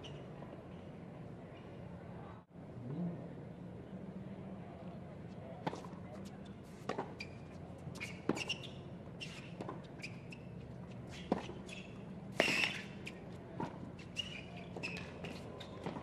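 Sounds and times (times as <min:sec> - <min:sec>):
sneaker squeaks on court: 0:06.9 - 0:13.2, 0:14.0 - 0:16.0
racket hitting tennis ball: 0:11.1 - 0:14.1.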